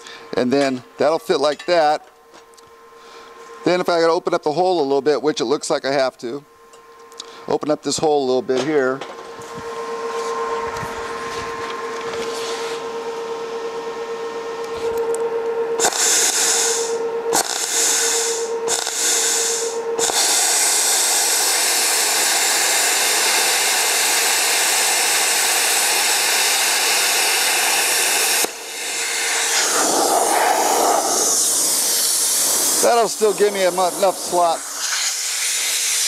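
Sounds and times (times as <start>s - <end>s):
steady hum: 0.0s - 36.0s
air hissing through torch: 15.8s - 36.0s
plasma cutter hissing: 15.8s - 36.0s.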